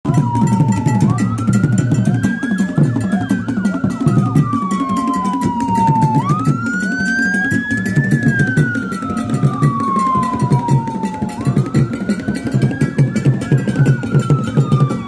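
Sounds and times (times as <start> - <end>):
music with heavy choppy beat: 0.1 - 15.0
siren wail: 0.1 - 15.0.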